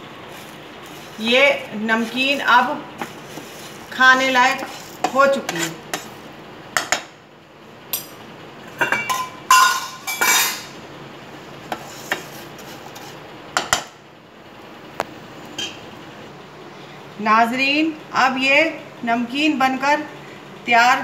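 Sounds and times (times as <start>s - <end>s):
metal ladle scraping a pan: 2.0s - 6.2s, 9.1s - 10.7s, 11.7s - 13.2s.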